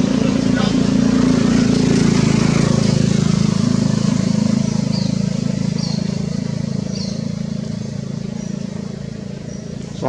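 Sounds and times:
small engine running: 0.0 - 10.0.

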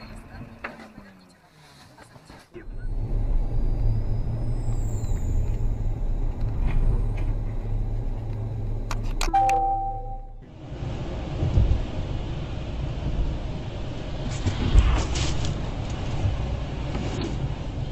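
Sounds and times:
car engine and road noise: 0.0 - 17.9
steady pitched tone: 9.3 - 10.4.

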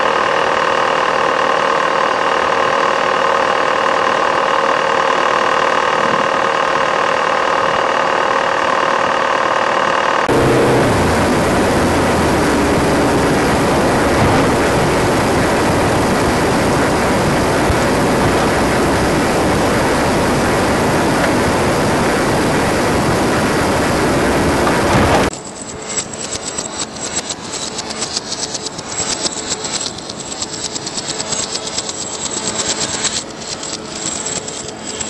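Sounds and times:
loud steady rushing noise: 0.0 - 35.0.

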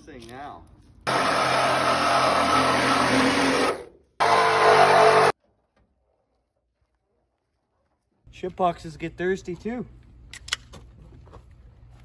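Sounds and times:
reciprocating saw cutting metal: 1.1 - 5.4.

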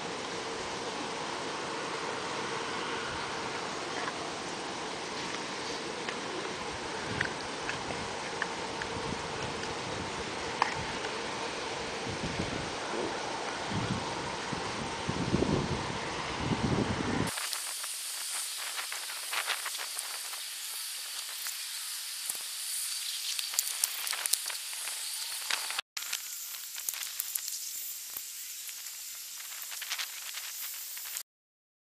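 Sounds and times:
crackling hiss with pops: 0.0 - 15.5, 17.2 - 31.2
wind buffeting microphone: 12.0 - 17.4.

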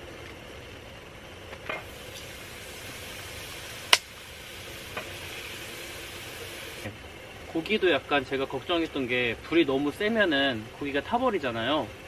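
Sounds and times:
meat sizzling on a griddle: 1.9 - 6.8.

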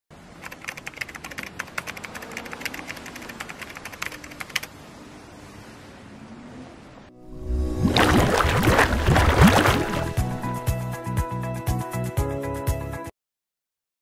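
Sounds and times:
keyboard typing clicks: 0.4 - 4.7.

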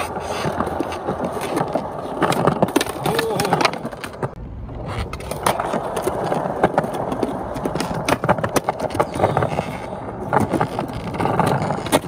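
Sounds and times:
skateboard clicks and knocks: 0.0 - 12.0
skateboard wheels rumbling on concrete: 0.0 - 12.0.

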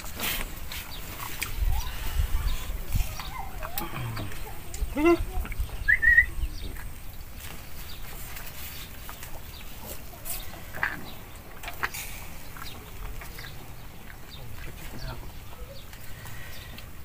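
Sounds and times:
person eating: 0.0 - 5.6.

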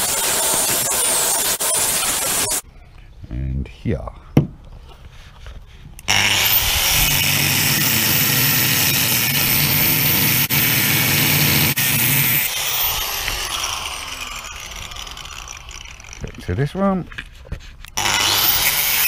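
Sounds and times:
angle grinder motor whining: 0.0 - 2.6, 6.0 - 16.8, 17.9 - 19.0
grinder disc cutting steel: 0.0 - 2.6, 6.1 - 17.0, 17.9 - 19.0.

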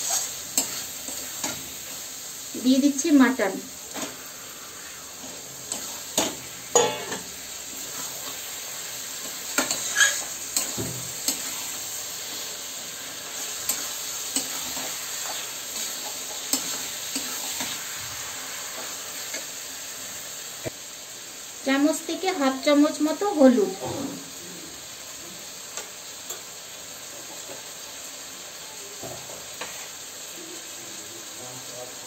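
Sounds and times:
metal spatula clinking and scraping: 0.0 - 1.6, 5.7 - 7.3, 9.5 - 11.7
meat sizzling in hot oil: 0.0 - 32.0.

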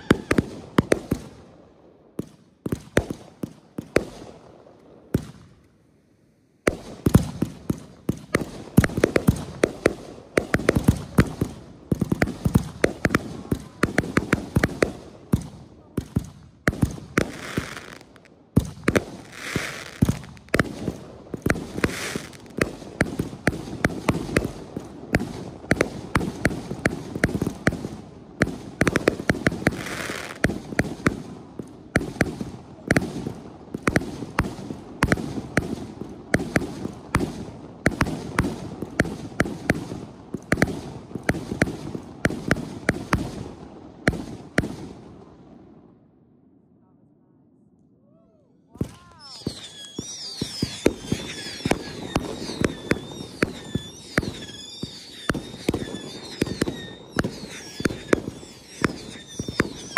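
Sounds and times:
firework launches and bangs: 6.7 - 27.8, 48.8 - 59.9
firework crackling hiss: 16.8 - 27.8, 28.5 - 31.2, 49.1 - 59.9.

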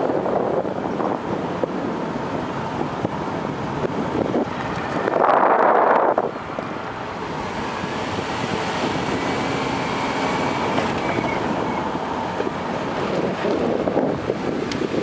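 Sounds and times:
car driving at low speed: 0.0 - 15.0.

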